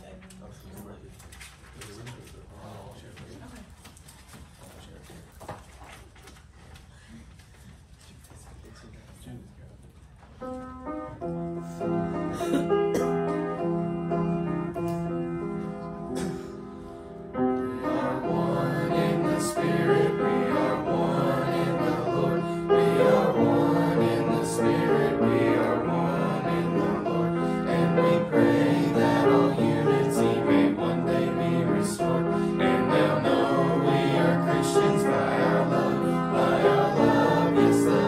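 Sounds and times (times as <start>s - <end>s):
gospel choir singing: 17.3s - 38.0s.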